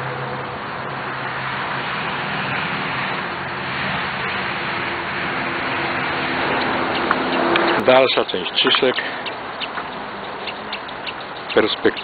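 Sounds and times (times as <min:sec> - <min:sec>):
low engine hum: 0:00.0 - 0:12.0
tyre and road noise: 0:00.0 - 0:12.0.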